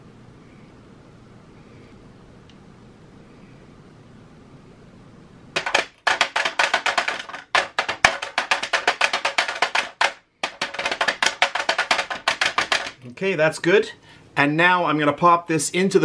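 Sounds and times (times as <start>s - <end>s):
plastic mold tapping on pan: 5.6s - 13.0s.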